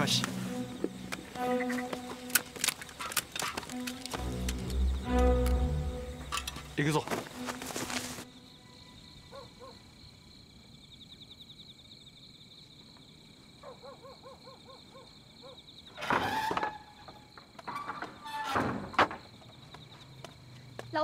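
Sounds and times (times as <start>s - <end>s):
night insects chirring: 0.0s - 21.0s
wooden door creaking: 15.9s - 19.4s.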